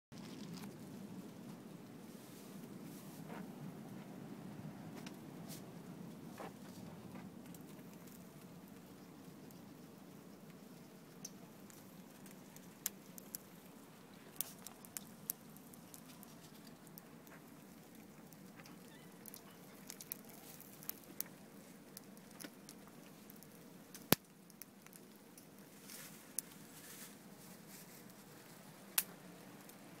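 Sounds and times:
low steady hum: 0:00.2 - 0:30.0
meat crackling on charcoal grill: 0:06.4 - 0:30.0.

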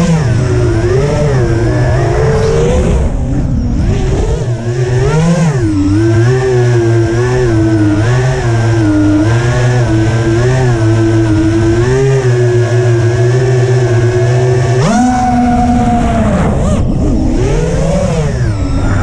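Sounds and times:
drone motors whining: 0:00.0 - 0:19.0.

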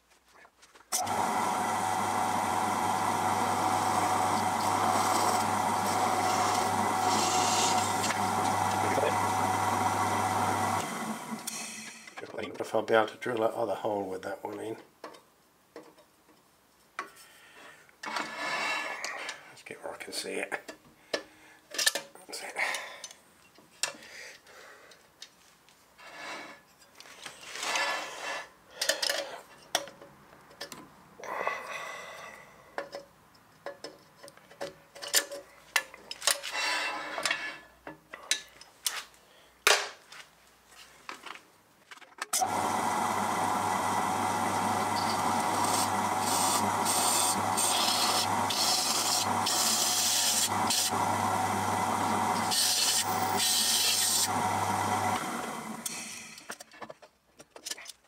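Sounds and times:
pillar drill drilling metal: 0:01.0 - 0:12.2, 0:42.4 - 0:56.5.

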